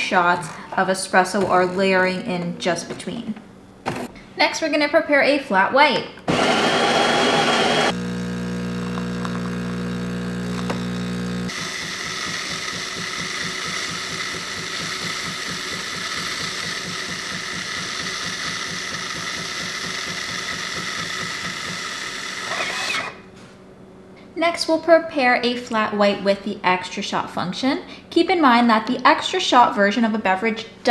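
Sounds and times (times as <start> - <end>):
pump pulsing: 6.3 - 22.8
coffee grinder humming: 6.3 - 23.2.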